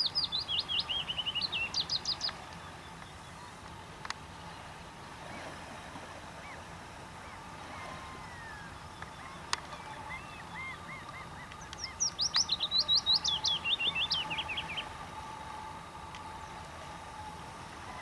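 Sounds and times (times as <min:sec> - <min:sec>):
faint steady hum: 0:00.0 - 0:18.0
songbird singing: 0:00.0 - 0:18.0.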